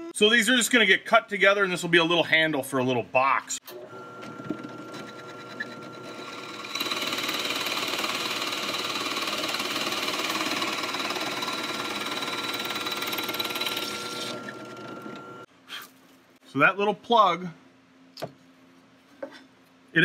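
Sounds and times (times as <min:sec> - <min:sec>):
drill press motor whine: 0:03.7 - 0:15.5
drill bit boring into wood: 0:04.9 - 0:15.4.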